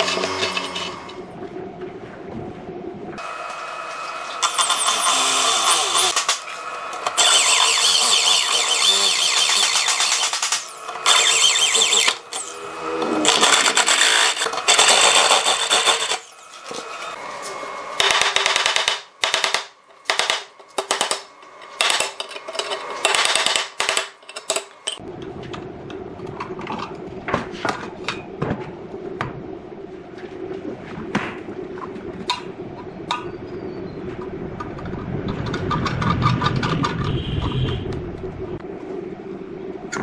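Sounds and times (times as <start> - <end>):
hole saw screeching through steel: 4.4 - 6.2, 7.2 - 16.5.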